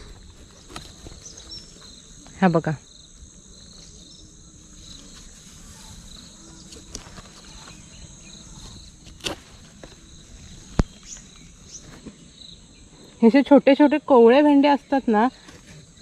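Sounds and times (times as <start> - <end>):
insects chirring: 0.0 - 16.0
pod stem snapping: 9.0 - 10.0, 10.6 - 11.2.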